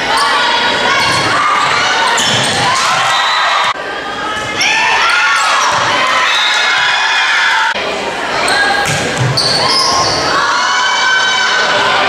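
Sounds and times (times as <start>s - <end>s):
voices echoing in hall: 0.0s - 12.0s
shoes squeaking on gym floor: 9.2s - 10.2s.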